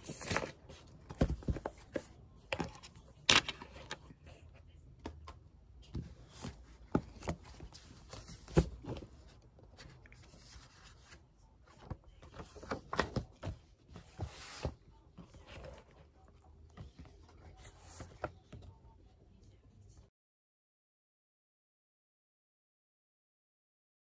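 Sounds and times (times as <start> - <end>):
book pages flipping: 0.0 - 4.2, 5.0 - 18.7.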